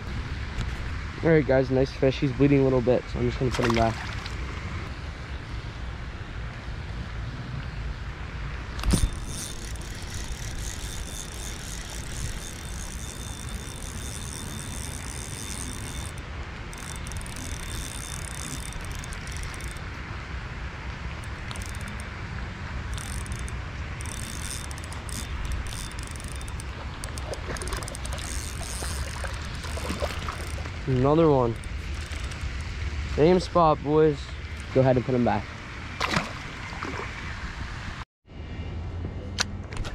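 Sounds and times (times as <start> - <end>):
fishing reel gears whirring: 8.8 - 20.0, 21.2 - 22.2, 22.8 - 34.8.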